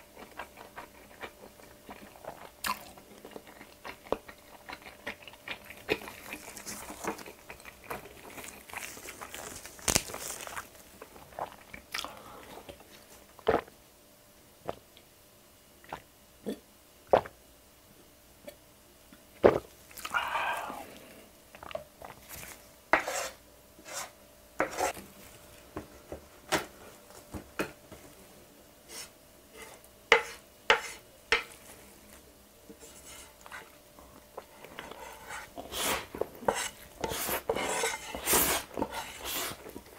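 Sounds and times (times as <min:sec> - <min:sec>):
wet chewing and mouth clicks: 0:00.2 - 0:12.1
spoon scraping a plastic plate: 0:23.0 - 0:25.0, 0:34.7 - 0:39.6.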